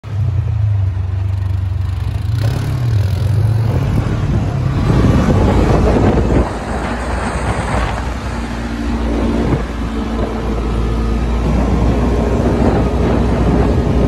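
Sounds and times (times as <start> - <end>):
dune buggy engine running: 0.0 - 14.0.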